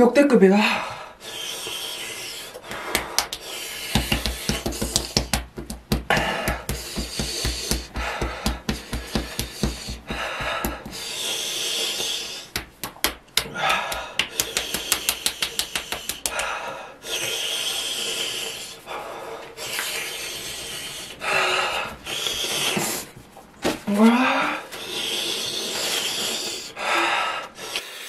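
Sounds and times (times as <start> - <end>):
man breathing hard: 0.6 - 12.7, 13.4 - 23.2, 24.0 - 28.0
quick run of clicks: 12.5 - 16.5.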